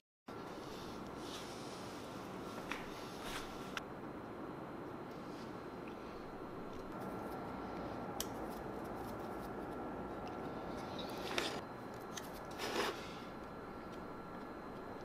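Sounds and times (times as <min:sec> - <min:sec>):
faint steady hum: 0:00.3 - 0:15.0
knife blade scraping metal: 0:10.8 - 0:13.1.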